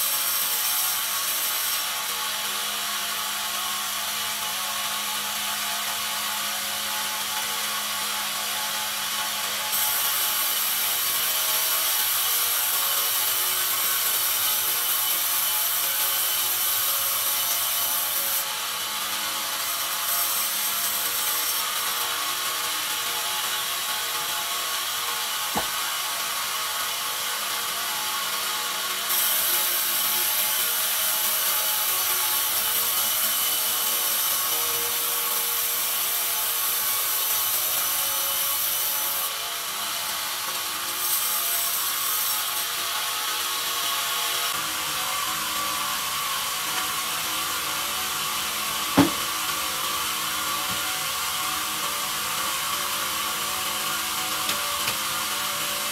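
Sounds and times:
band saw cutting log: 0.0 - 55.9
sharp knock: 25.6 - 25.8, 49.0 - 49.3.

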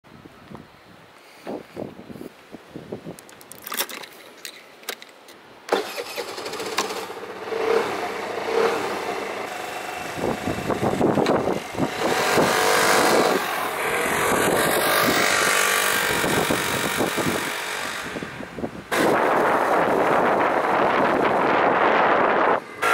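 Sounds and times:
scooter engine running: 5.8 - 22.9.

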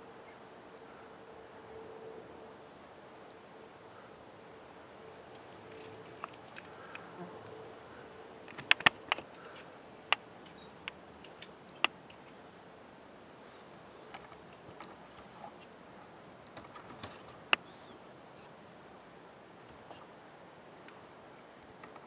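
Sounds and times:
faint insect buzz: 0.2 - 12.2
sharp clicks: 8.4 - 12.4.

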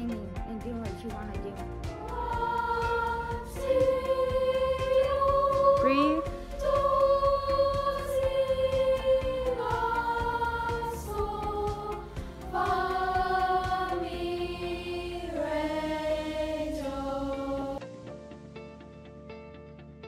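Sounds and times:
choir singing descending scale: 2.0 - 17.8.

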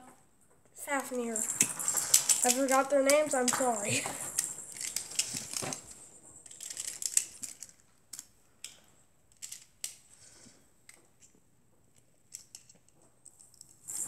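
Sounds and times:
plastic tops clicking together: 6.5 - 10.1.

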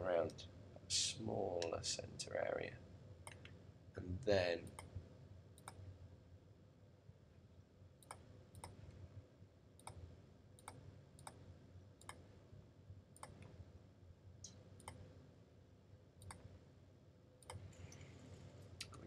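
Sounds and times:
computer mouse clicks: 3.2 - 3.6, 4.6 - 5.0, 5.6 - 5.8, 8.0 - 8.9, 9.8 - 11.4, 12.0 - 12.3, 13.2 - 13.6, 14.4 - 15.1, 16.2 - 16.5, 17.4 - 18.1.

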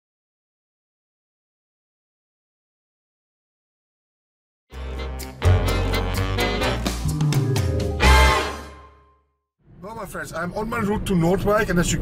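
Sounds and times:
intro theme music with beat: 4.7 - 9.1.

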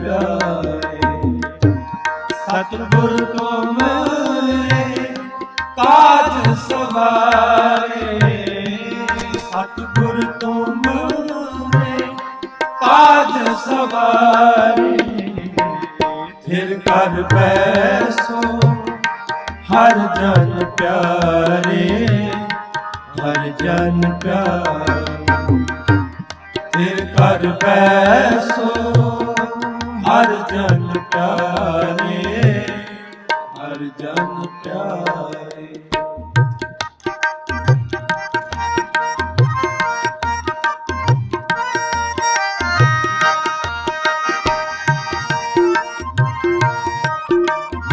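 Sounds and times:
person singing: 0.0 - 1.8, 2.4 - 19.0, 19.6 - 22.5, 23.1 - 26.2, 26.8 - 35.9
harmonium melody: 0.0 - 47.9
tabla rhythm: 0.0 - 47.9.

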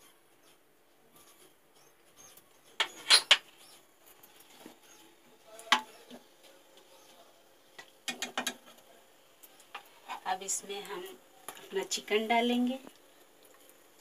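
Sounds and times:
spices sizzling in hot oil: 2.8 - 14.0.

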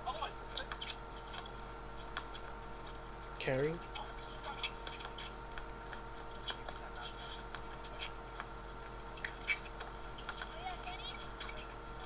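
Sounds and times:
electrical hum: 0.0 - 12.0
faint clicks and ticks: 3.8 - 12.0.

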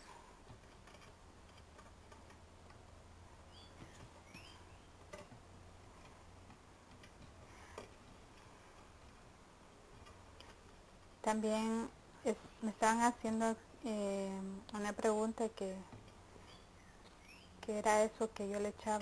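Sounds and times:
low room hum: 0.0 - 19.0
faint high chirps: 3.5 - 4.9, 16.4 - 17.6.

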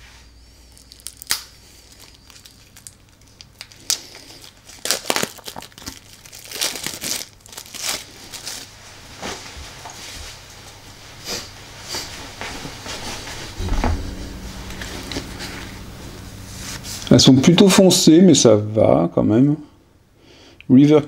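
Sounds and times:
plastic wrap crinkling: 0.7 - 9.4.

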